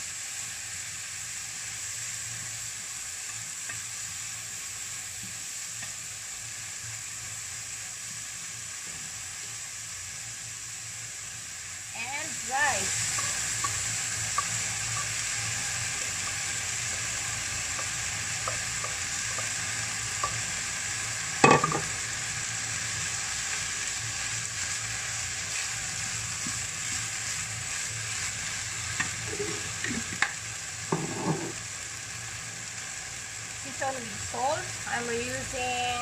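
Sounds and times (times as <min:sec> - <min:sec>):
fried rice sizzling in a pan: 0:00.0 - 0:36.0
spatula scraping a pan: 0:30.9 - 0:31.6.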